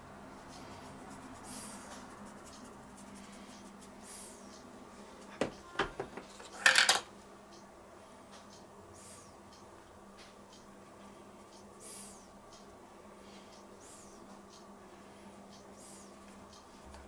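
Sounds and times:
dishes clinking and clattering: 5.4 - 7.1.

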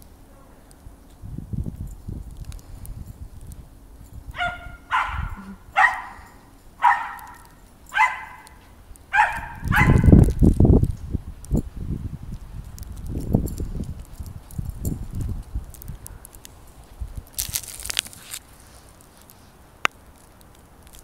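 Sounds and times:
dog barking: 4.3 - 10.2.

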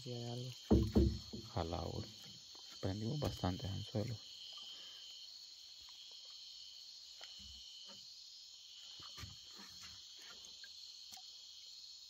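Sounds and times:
crickets chirring: 0.0 - 12.0
soft knocks: 0.7 - 1.7.

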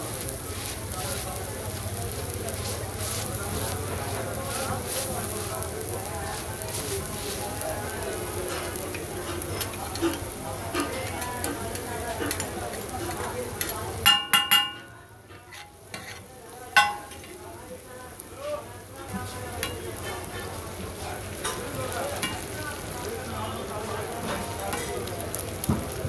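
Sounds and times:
eggs sizzling on griddle: 0.0 - 26.0
metal spatulas scraping: 8.6 - 13.7, 15.3 - 17.3
ringing metal spatula clanks: 14.0 - 14.9, 16.8 - 17.3.

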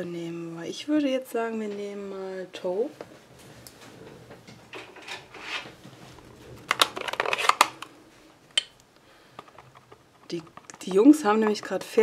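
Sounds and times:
plastic case scraping and rustling: 4.8 - 8.0
plastic clicks and clacks: 6.6 - 7.9, 9.3 - 11.9.

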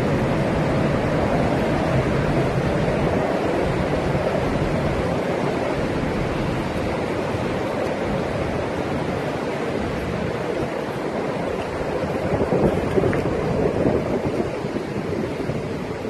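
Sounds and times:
storm wind and surf: 0.0 - 16.0.

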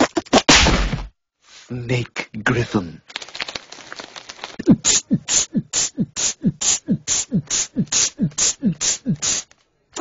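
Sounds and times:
vocal beatboxing: 4.6 - 10.0.

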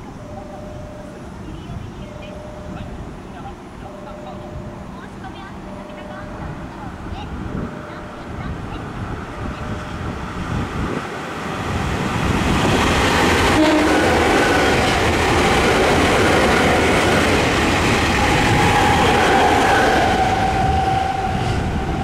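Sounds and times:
short steady tones: 0.0 - 10.0
train wheels clattering on rails: 11.0 - 22.0.

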